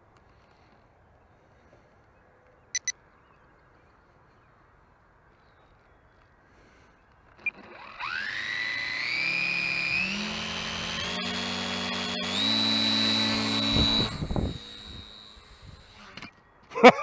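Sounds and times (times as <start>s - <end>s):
electric motor and propeller whine: 7.3s - 16.5s.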